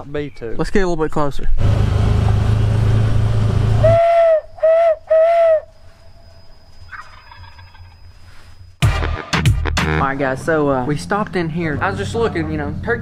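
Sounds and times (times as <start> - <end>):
utility vehicle engine and rattle: 1.0 - 3.9
owl locator call hoots: 3.8 - 8.2.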